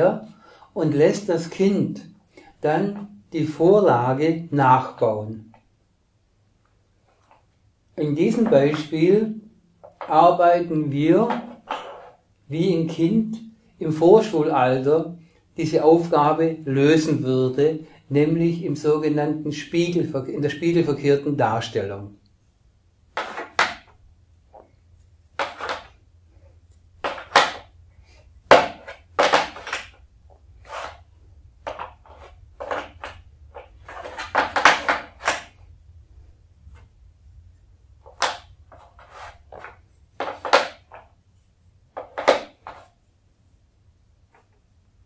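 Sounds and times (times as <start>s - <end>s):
wood-on-wood knocks: 28.5s - 30.0s, 42.0s - 42.8s.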